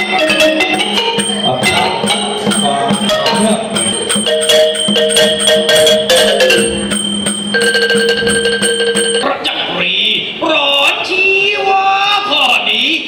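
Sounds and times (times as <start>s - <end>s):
long held notes: 0.0s - 9.3s
xylophone melody: 0.0s - 9.3s.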